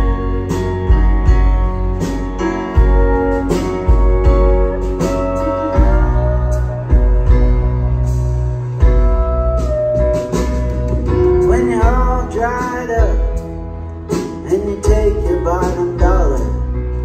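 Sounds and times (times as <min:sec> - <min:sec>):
live rock band playing: 0:00.0 - 0:17.0
drum hits: 0:08.8 - 0:13.5
man singing: 0:11.3 - 0:13.5, 0:14.4 - 0:17.0.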